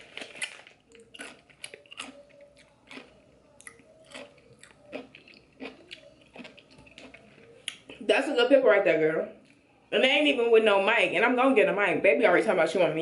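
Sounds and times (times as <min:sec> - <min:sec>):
person chewing crunchy food: 0:00.0 - 0:08.0.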